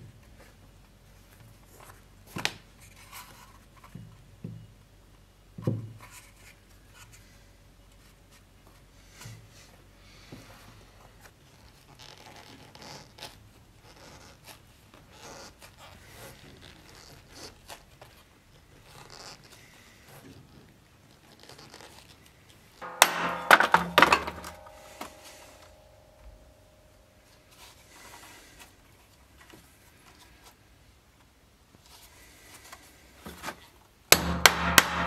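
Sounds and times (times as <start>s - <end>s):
loud clatter of knocks: 22.8s - 26.4s, 34.1s - 35.0s.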